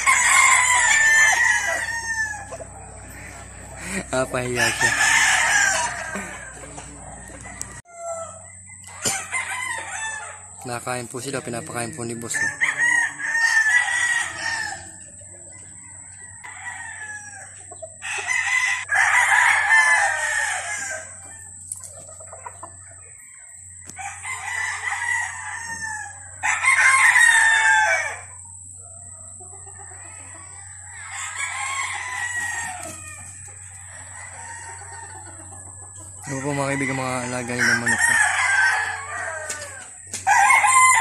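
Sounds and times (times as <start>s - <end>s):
roosters crowing: 0.0s - 41.0s.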